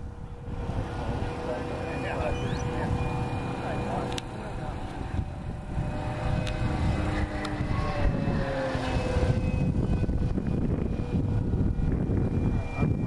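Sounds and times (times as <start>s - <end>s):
model airplane motor whine: 0.0s - 13.0s.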